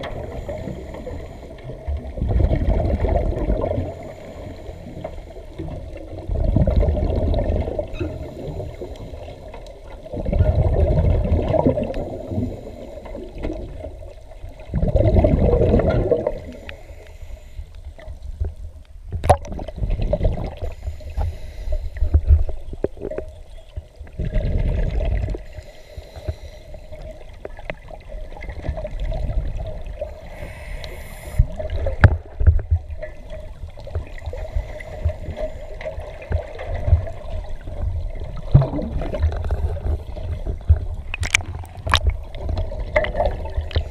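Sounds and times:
diver breathing: 0.0s - 1.7s, 3.9s - 5.3s, 12.1s - 13.4s, 16.2s - 17.8s, 20.6s - 22.3s, 25.4s - 27.1s, 30.1s - 31.6s, 34.3s - 36.0s
underwater regulator bubbles: 0.0s - 17.5s, 18.4s - 43.9s.

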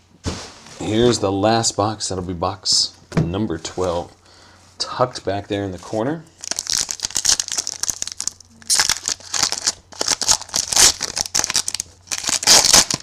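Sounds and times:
wrapper tearing and crinkling: 6.4s - 13.0s.

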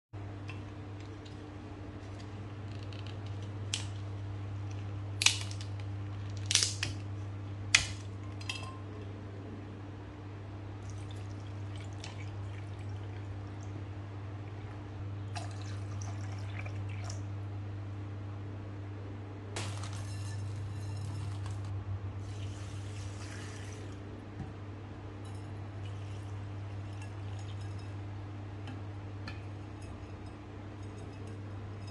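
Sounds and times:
steady low hum: 0.2s - 31.9s
water pouring: 10.8s - 13.8s, 15.3s - 17.2s, 22.2s - 24.0s.

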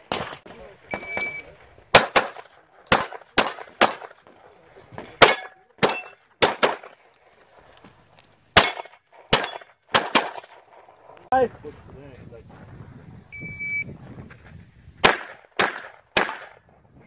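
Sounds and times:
handgun shots: 2.0s - 4.2s, 5.2s - 6.9s, 8.6s - 10.5s, 15.0s - 16.5s
steel target ringing: 5.2s - 6.2s.

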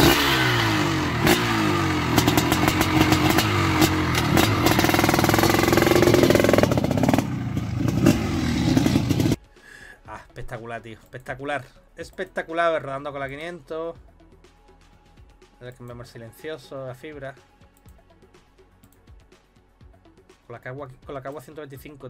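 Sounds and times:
motocross bike engine revving: 0.0s - 9.4s.

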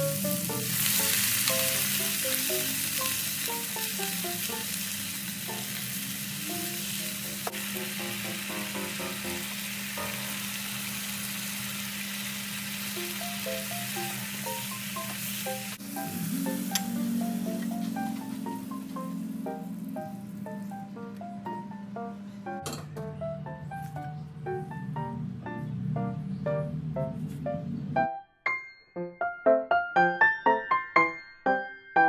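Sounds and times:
light background melody: 0.0s - 10.8s, 13.0s - 32.0s
stir-fry sizzling in a pan: 0.0s - 20.7s.

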